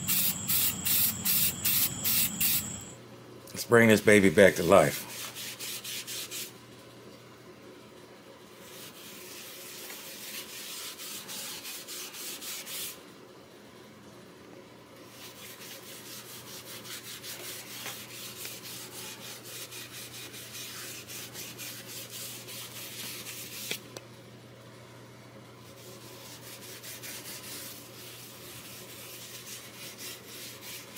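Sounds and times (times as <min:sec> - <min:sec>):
cloth rag wiping wood: 0:15.1 - 0:23.6, 0:25.7 - 0:30.9.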